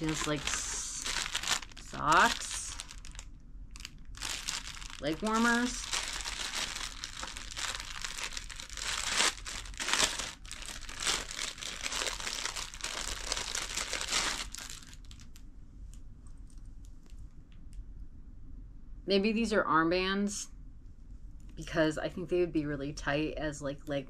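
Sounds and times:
packaging crinkling and tearing: 0:00.0 - 0:15.4.

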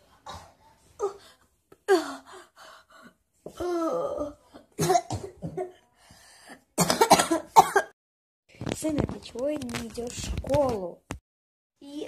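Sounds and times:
boy coughing: 0:04.7 - 0:05.8, 0:06.8 - 0:07.9.

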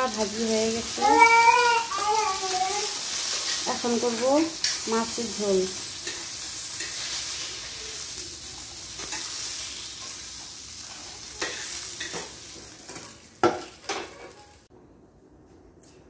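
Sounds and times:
oil sizzling in a frying pan: 0:00.0 - 0:14.7
metal spatula scraping a pan: 0:03.1 - 0:07.9, 0:08.8 - 0:14.6.

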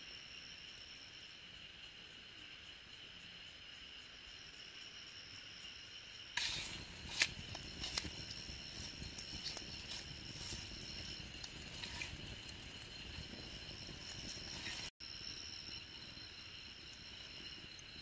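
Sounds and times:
insects trilling: 0:00.0 - 0:18.0
campfire crackling and popping: 0:06.4 - 0:14.9.

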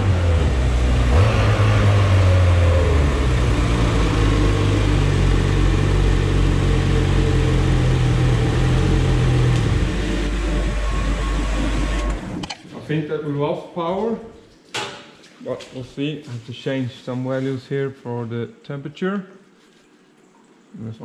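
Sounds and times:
snowmobile engine running: 0:00.0 - 0:12.2.

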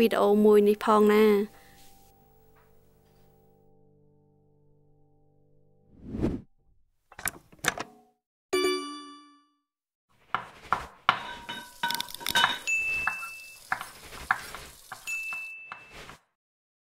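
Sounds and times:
food sizzling: 0:10.4 - 0:16.2
utensils clinking against pots: 0:11.1 - 0:16.2.

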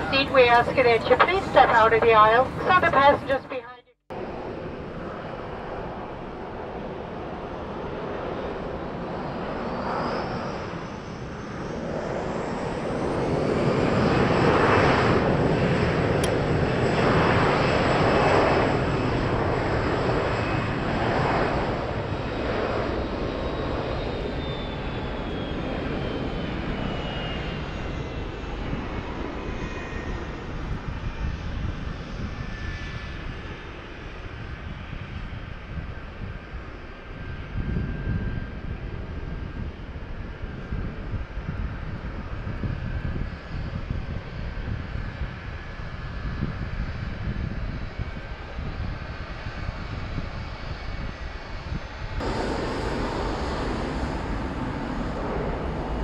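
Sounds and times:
high engine whine: 0:00.0 - 0:06.6, 0:52.2 - 0:56.0
jet engines roaring: 0:00.0 - 0:56.0.

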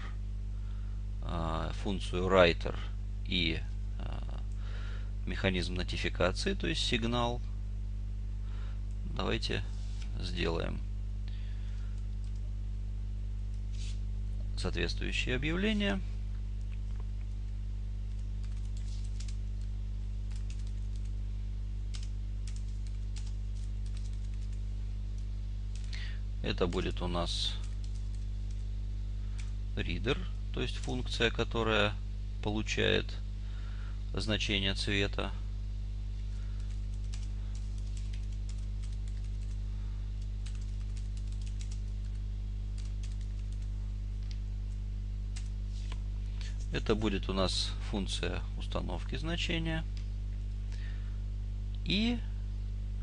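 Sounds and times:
low hum: 0:00.0 - 0:53.0
computer keyboard typing: 0:18.1 - 0:19.4, 0:20.3 - 0:21.1, 0:21.9 - 0:24.6, 0:25.7 - 0:26.0, 0:27.6 - 0:28.6, 0:36.6 - 0:39.6, 0:40.4 - 0:42.2, 0:42.8 - 0:43.7.

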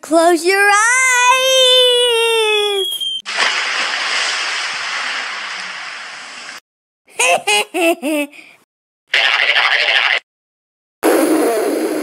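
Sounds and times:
cartoon splash effect: 0:03.3 - 0:04.4
bursts of laughter: 0:07.1 - 0:08.3.

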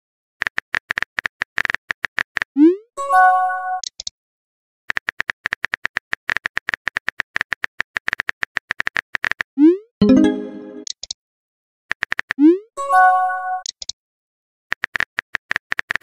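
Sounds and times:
chiming notification tone: 0:10.0 - 0:10.9
keyboard typing clicks: 0:13.6 - 0:14.0.

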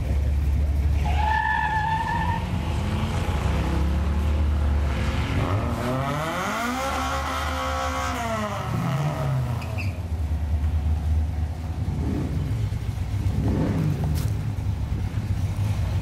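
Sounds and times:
engine and exhaust rumble: 0:00.0 - 0:16.0
tire squeal: 0:00.9 - 0:02.8, 0:09.4 - 0:10.2.

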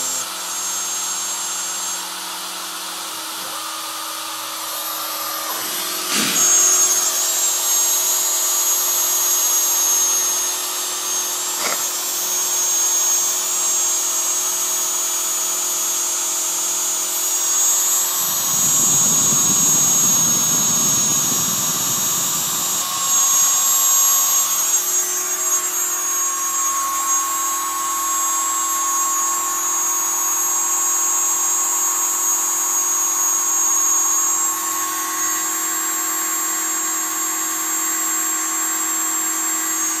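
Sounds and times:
cnc router spindle whine: 0:00.0 - 0:40.0
low rumble: 0:17.7 - 0:24.3.

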